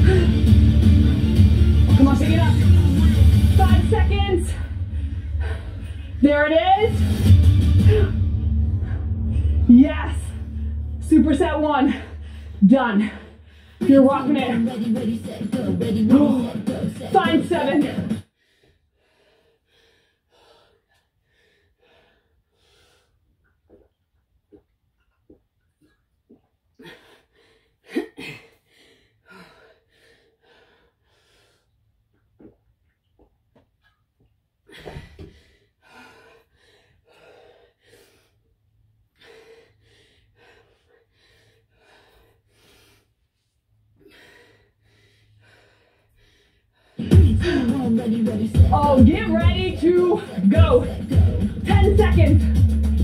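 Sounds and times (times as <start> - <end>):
person breathing hard: 0.0 - 0.9, 4.6 - 6.2, 7.0 - 9.7, 11.9 - 13.8, 18.2 - 23.3, 26.7 - 31.9, 34.6 - 47.9.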